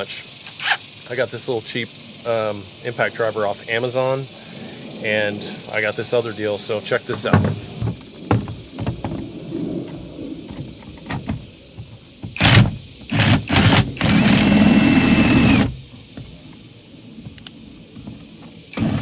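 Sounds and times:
impact driver running: 12.4 - 15.8, 18.7 - 19.0.

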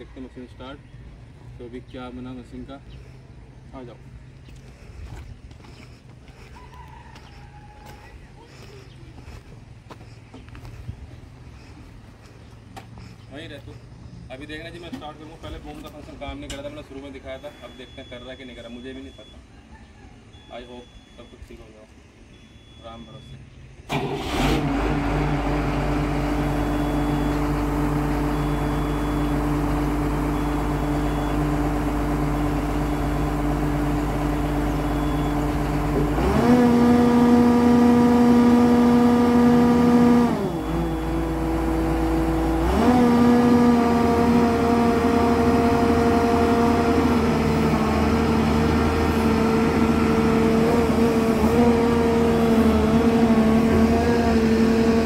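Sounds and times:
excavator diesel engine: 0.0 - 19.4, 20.2 - 55.0
faint short beeps: 17.2 - 19.5, 22.3 - 23.5.

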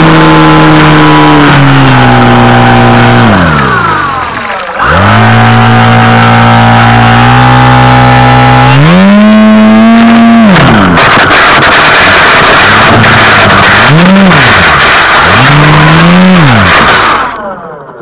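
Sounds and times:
model plane motor and propeller: 0.0 - 10.9, 12.9 - 17.4.

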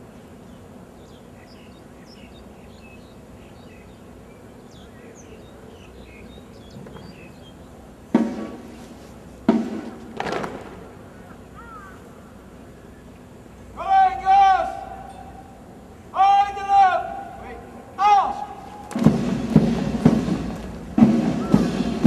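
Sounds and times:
low outdoor hum: 0.0 - 22.0
faint bird chirps: 0.3 - 7.8, 11.0 - 13.3
shouted commands echoing: 13.7 - 22.0.

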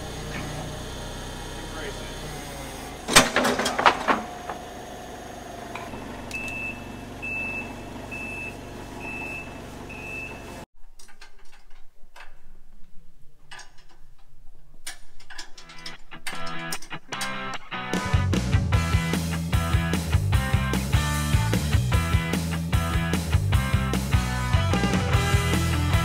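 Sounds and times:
forklift engine running: 0.0 - 10.7, 17.9 - 26.0
metal clanks: 3.1 - 4.7, 13.4 - 17.6
reversing alarm beeping: 5.9 - 10.6.

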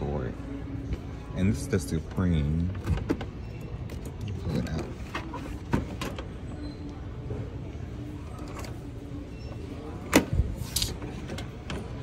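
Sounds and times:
low store hum: 0.0 - 12.0.

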